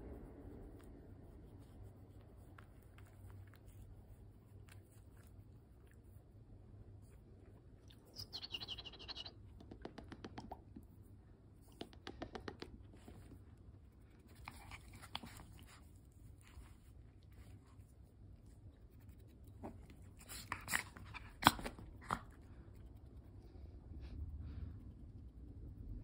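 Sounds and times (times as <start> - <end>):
faint scratching: 0.0 - 24.2
dog nibbling fingers: 7.0 - 23.4
dog high-pitched squeak: 8.2 - 9.3.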